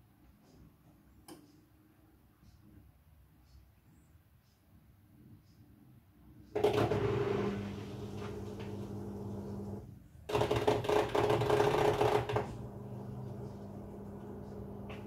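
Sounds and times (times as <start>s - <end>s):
drain pump motor hum: 6.6s - 15.0s.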